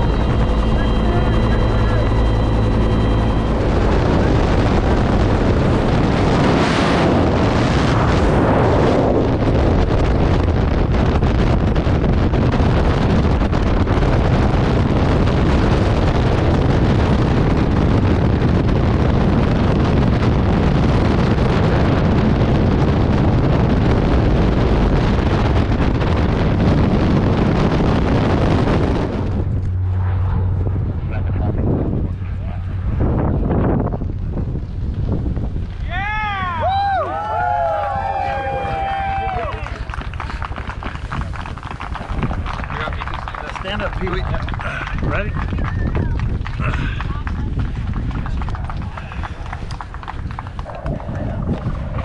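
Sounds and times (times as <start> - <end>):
helicopter cabin noise: 0.0 - 52.0
wind roaring over microphone: 0.0 - 52.0.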